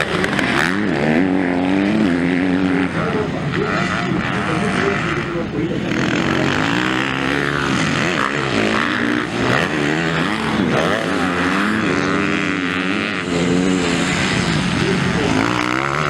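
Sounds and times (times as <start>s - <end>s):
motocross bike engines revving: 0.0s - 16.0s.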